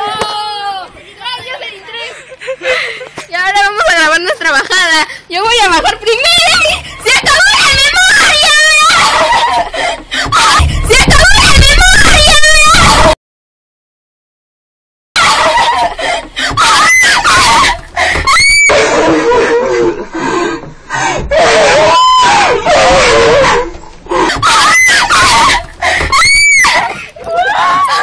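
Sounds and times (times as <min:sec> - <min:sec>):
distorted shrill screaming: 0:16.5 - 0:19.7, 0:21.3 - 0:26.9.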